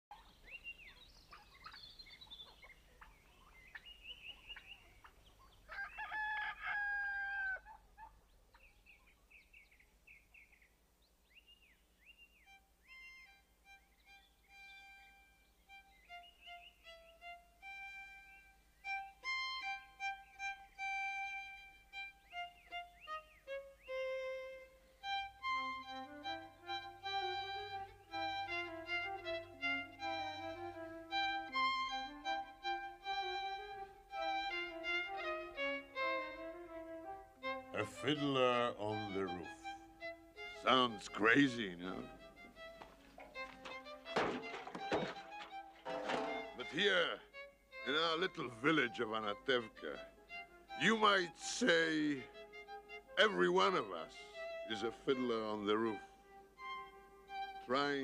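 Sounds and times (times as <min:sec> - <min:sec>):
birds chirping: 0:00.1 - 0:30.9, 0:37.4 - 0:52.2
rooster crowing: 0:05.7 - 0:07.8
solo violin melody: 0:12.4 - 0:58.0.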